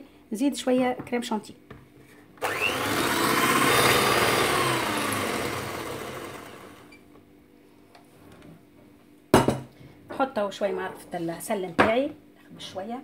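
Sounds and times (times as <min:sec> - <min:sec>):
electric hand mixer whirring: 0:02.4 - 0:07.0.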